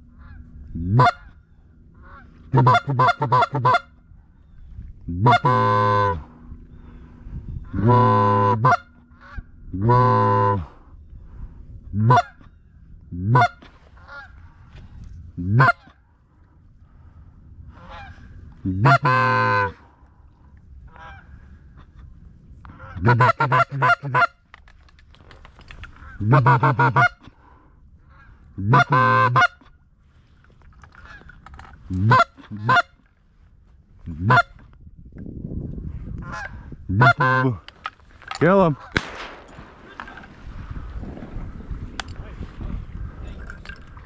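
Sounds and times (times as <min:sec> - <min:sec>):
duck call quacking: 0:00.2 - 0:01.3, 0:02.0 - 0:03.9, 0:05.2 - 0:06.2, 0:07.7 - 0:10.7, 0:12.0 - 0:12.4, 0:13.2 - 0:14.3, 0:15.4 - 0:15.9, 0:18.7 - 0:19.8, 0:22.8 - 0:24.4, 0:26.0 - 0:27.2, 0:28.6 - 0:29.6, 0:31.9 - 0:33.0, 0:34.2 - 0:34.6, 0:36.3 - 0:37.6.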